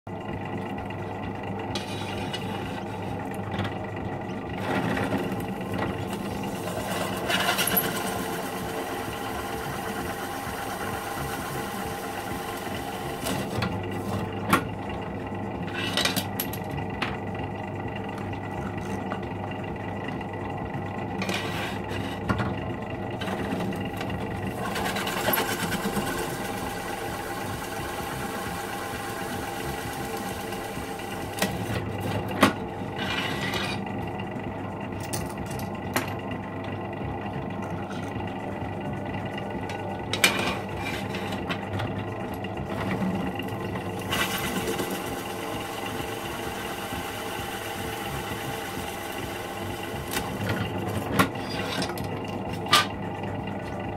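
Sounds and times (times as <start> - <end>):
drill press motor hum: 0.1 - 53.9
hole saw cutting: 24.5 - 31.8.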